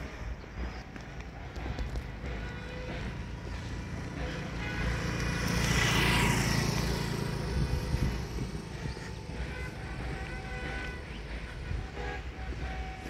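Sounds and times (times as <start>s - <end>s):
motor scooter passing: 0.0s - 13.0s
wind on microphone: 6.2s - 13.0s.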